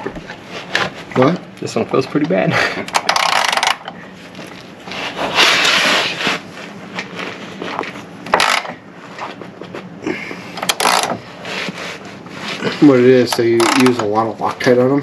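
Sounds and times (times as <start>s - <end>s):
bolt creaking and grinding: 10.6s - 11.2s.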